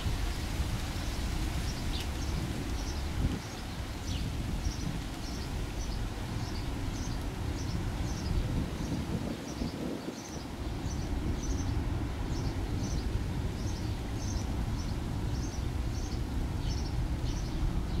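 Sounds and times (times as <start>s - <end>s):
bird chirping: 13.6s - 18.0s.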